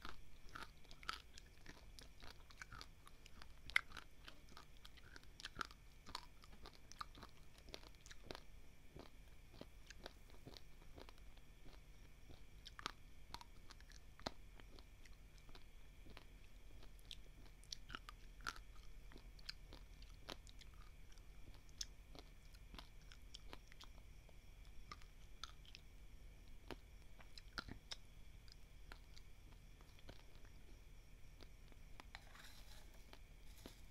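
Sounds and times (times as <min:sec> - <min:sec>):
rice grains crunching: 0:32.1 - 0:33.9.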